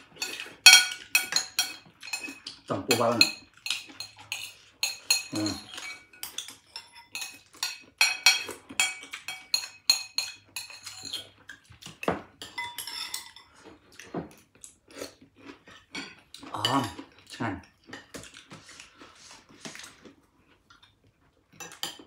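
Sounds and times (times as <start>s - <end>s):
metal spoon clinking on dish: 0.1s - 11.3s, 12.0s - 13.5s.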